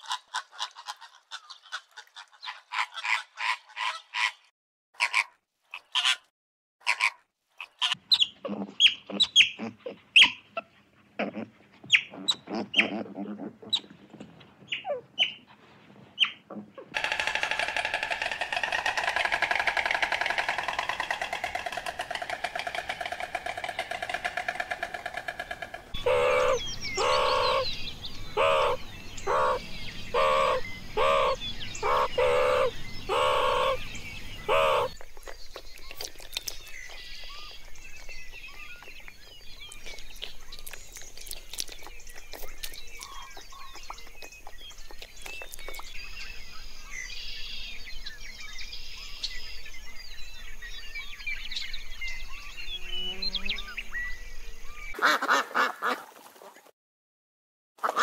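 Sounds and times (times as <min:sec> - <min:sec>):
birds chirping: 0:16.2 - 0:55.4
meerkat calls: 0:26.0 - 0:27.6, 0:28.4 - 0:33.8, 0:34.5 - 0:34.9.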